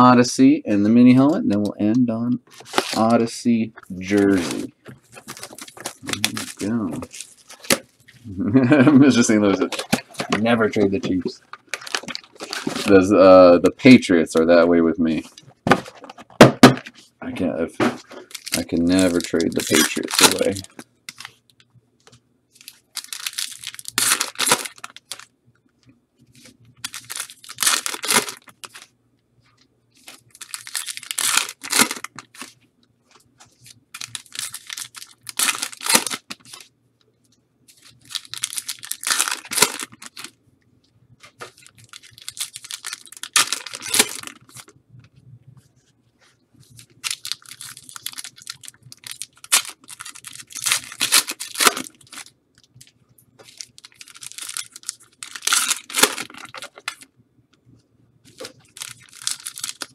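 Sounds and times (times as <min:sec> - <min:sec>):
packaging ripping and crinkling: 0:02.5 - 0:03.2, 0:04.0 - 0:13.1, 0:18.1 - 0:21.4, 0:22.6 - 0:25.3, 0:26.4 - 0:28.9, 0:30.0 - 0:32.6, 0:33.5 - 0:36.7, 0:37.7 - 0:40.3, 0:41.3 - 0:44.7, 0:46.6 - 0:57.1, 0:58.3 - 0:59.9.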